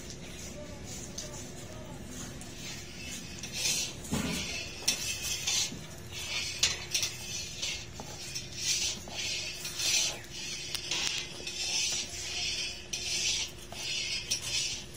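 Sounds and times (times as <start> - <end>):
plate scraping in tray: 2.2 - 14.9.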